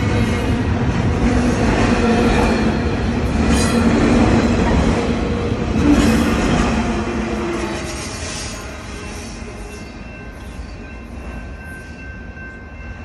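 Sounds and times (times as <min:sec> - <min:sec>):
freight train wheels rumbling on rails: 0:00.0 - 0:13.0.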